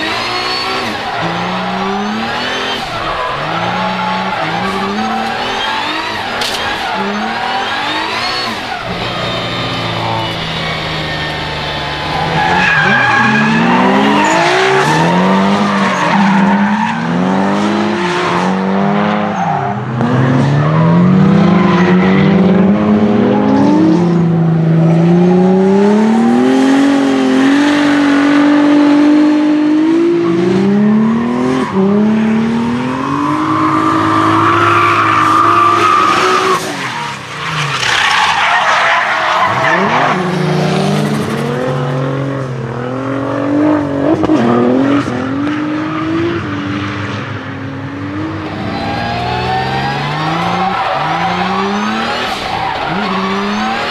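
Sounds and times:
tyres screeching: 0:00.0 - 0:17.3, 0:31.1 - 0:40.3, 0:48.4 - 0:53.9
car engine revving: 0:00.0 - 0:53.9.

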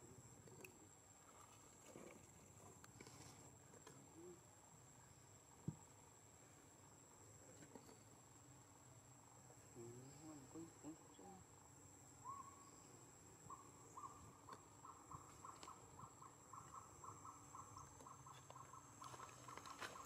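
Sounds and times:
faint outdoor ambience: 0:00.0 - 0:20.0
low wavering animal calls: 0:09.7 - 0:20.0.

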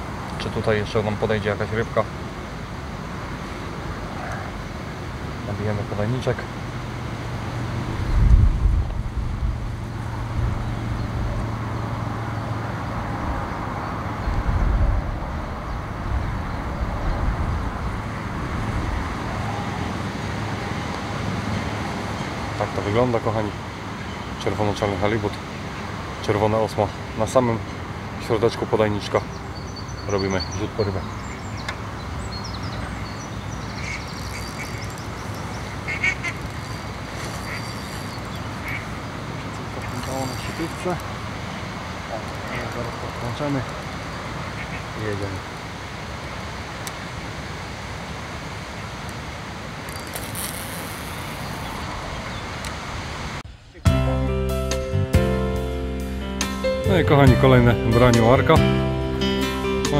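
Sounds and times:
wind buffeting microphone: 0:07.6 - 0:12.0, 0:13.0 - 0:19.4
ducks quacking: 0:33.8 - 0:34.8, 0:35.7 - 0:39.0.

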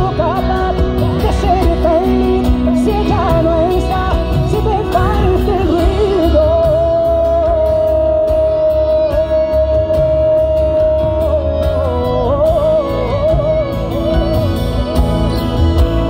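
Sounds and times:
live band music: 0:00.0 - 0:16.0.

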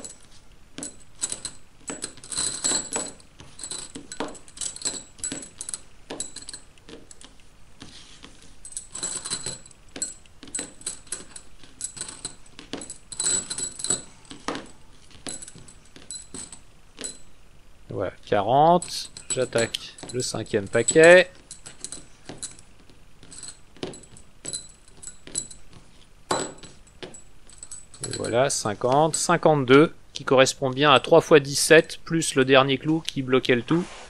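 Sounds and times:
steel nails clinking together: 0:00.0 - 0:07.3, 0:08.6 - 0:17.2, 0:18.8 - 0:22.6, 0:26.3 - 0:29.4.

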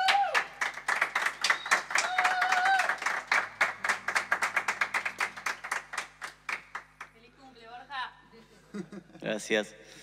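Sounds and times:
held whoop: 0:00.0 - 0:00.5, 0:02.0 - 0:03.1
people clapping: 0:00.0 - 0:07.2.

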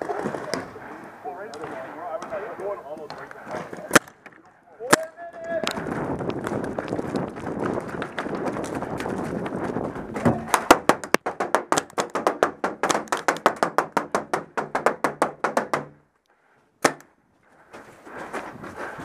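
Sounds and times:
paintballs striking plywood walls: 0:01.5 - 0:16.1, 0:16.8 - 0:17.0.

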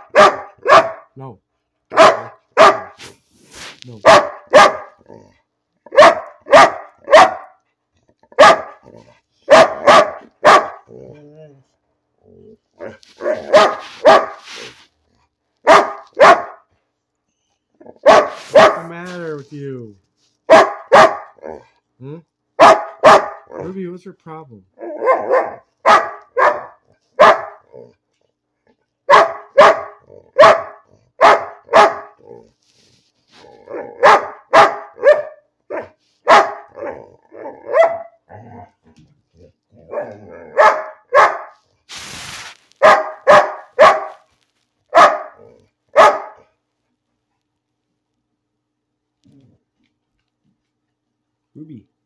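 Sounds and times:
large dog barking: 0:00.0 - 0:01.2, 0:01.9 - 0:03.0, 0:04.0 - 0:11.2, 0:12.8 - 0:14.4, 0:15.6 - 0:16.7, 0:17.8 - 0:19.0, 0:20.4 - 0:21.8, 0:22.5 - 0:23.7, 0:24.7 - 0:28.0, 0:29.0 - 0:32.5, 0:33.5 - 0:41.6, 0:42.8 - 0:44.3, 0:44.9 - 0:46.6
dog grunting: 0:04.9 - 0:05.5, 0:08.0 - 0:09.2, 0:09.8 - 0:13.0, 0:30.0 - 0:31.2, 0:32.1 - 0:32.6, 0:36.7 - 0:40.7.

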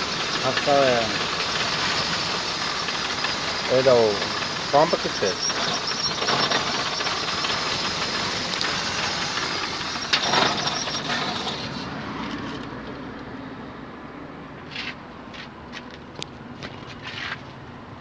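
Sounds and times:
car engine running: 0:00.0 - 0:11.8.

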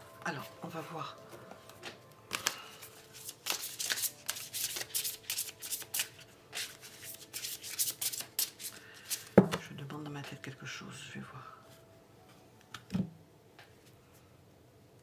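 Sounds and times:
cards being shuffled: 0:01.6 - 0:09.6.

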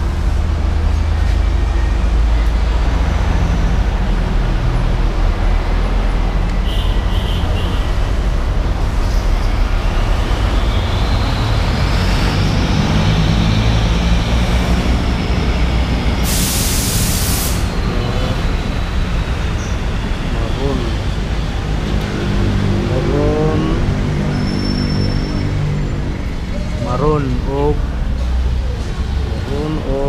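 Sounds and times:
vehicle engine and traffic rumble: 0:00.0 - 0:30.0
engine rising in pitch: 0:09.2 - 0:16.5
air hiss burst: 0:16.2 - 0:17.7.

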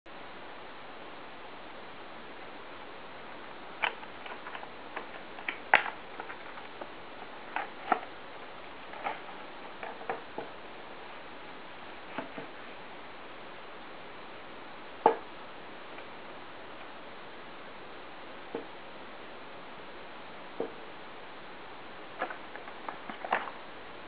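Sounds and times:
steady hiss: 0:00.1 - 0:24.0.

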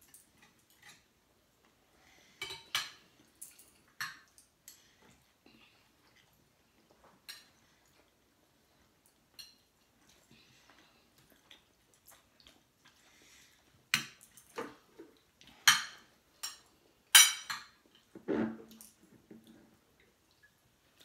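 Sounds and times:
cutlery clinking on plates: 0:02.4 - 0:04.8, 0:15.6 - 0:18.1.

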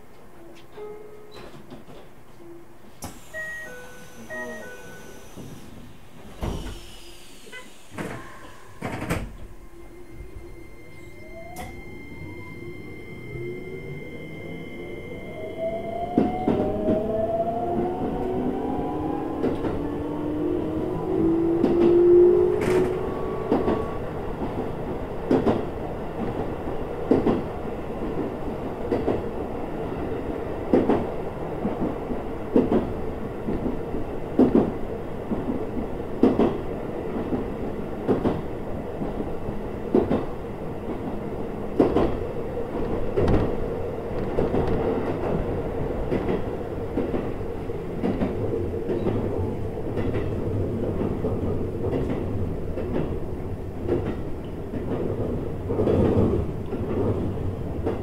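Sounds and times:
train running rumble: 0:16.1 - 0:29.3.

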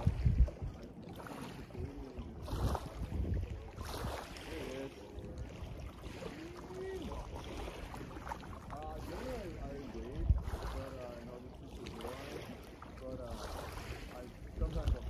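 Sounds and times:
wind on microphone: 0:00.0 - 0:11.4, 0:12.0 - 0:15.0
small boat on water: 0:00.0 - 0:15.0.

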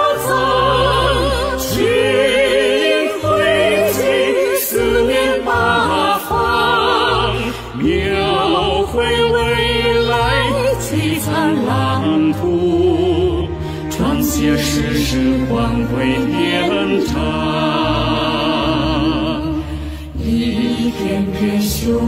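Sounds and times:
voices singing slow anthem: 0:00.0 - 0:22.0.

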